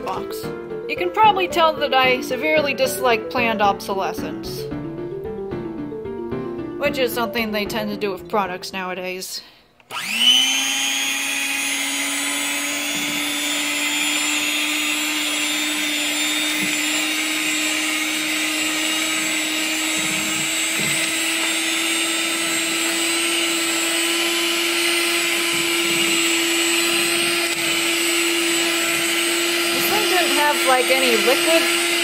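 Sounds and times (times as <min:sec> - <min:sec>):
electric mixer motor whine: 0:09.8 - 0:32.0.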